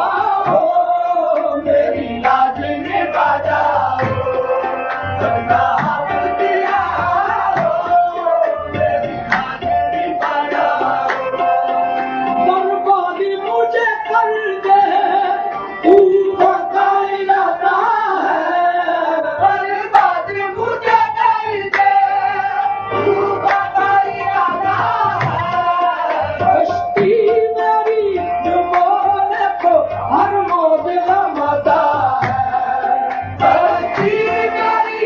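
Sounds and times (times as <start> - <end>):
harmonium: 0.0 - 35.0
person singing: 0.0 - 35.0
tabla beat: 0.0 - 35.0.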